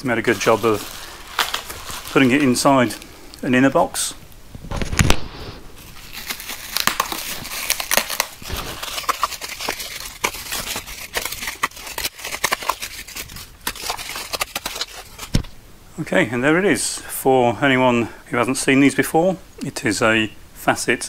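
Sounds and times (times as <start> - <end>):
bubble wrap crackling: 0.0 - 3.6, 4.6 - 15.5.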